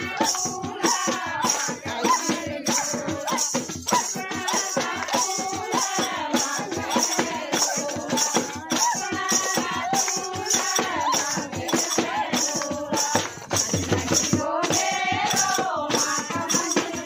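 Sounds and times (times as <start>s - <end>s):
drum beat: 0.0s - 17.0s
women singing folk song: 0.0s - 17.0s
hand claps: 2.3s - 6.6s, 7.2s - 14.2s.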